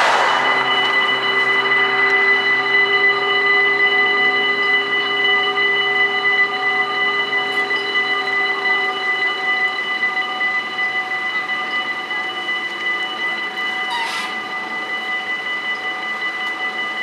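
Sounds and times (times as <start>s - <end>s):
low hum: 0.0s - 7.2s.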